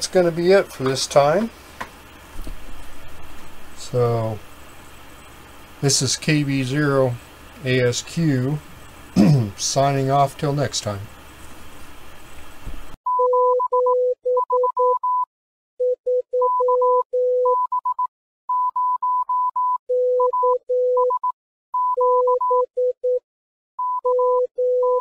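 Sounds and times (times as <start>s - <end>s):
morse code beeps: 13.1s - 23.2s, 23.8s - 25.0s.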